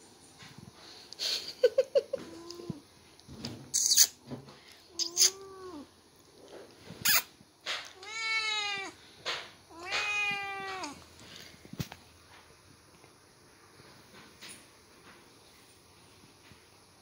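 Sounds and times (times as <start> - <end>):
cat meowing: 4.9 - 5.9, 7.9 - 9.0, 9.7 - 11.0.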